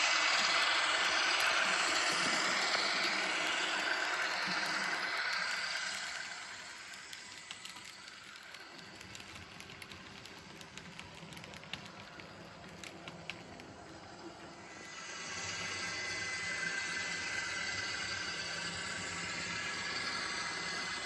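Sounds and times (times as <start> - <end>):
faint steady hum: 0.0 - 21.0
small clicks of model train: 0.1 - 15.0.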